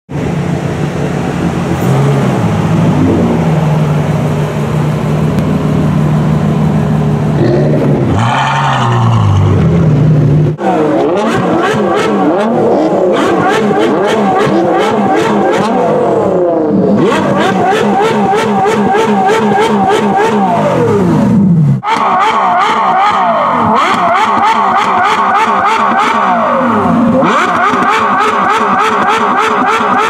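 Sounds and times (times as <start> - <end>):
sports car engine revving: 0.2 - 30.0.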